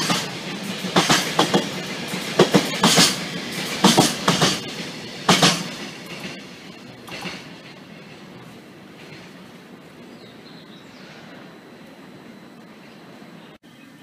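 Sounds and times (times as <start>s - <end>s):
train wheels clacking on rails: 0.0s - 10.4s
train rumble: 0.0s - 13.6s.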